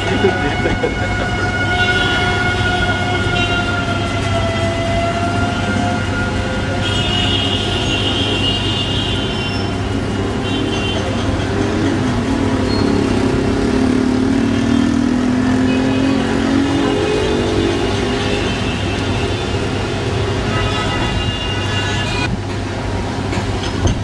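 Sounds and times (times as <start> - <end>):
tyres on wet road: 0.0 - 24.0
vehicle engine: 9.8 - 20.4.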